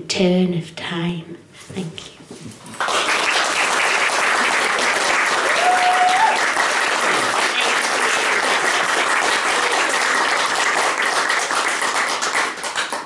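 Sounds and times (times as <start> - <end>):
audience applauding: 2.7 - 13.0.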